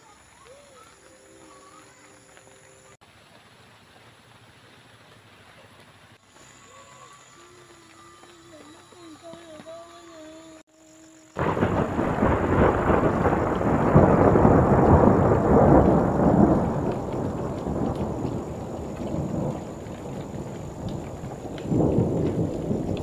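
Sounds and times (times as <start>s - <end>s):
thunder rumbling: 11.3s - 23.0s.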